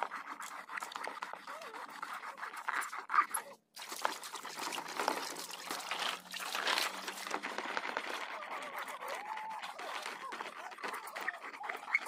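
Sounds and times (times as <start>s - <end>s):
hands scrubbing a plastic toy: 0.0s - 12.0s
water splashing and trickling: 0.0s - 12.0s.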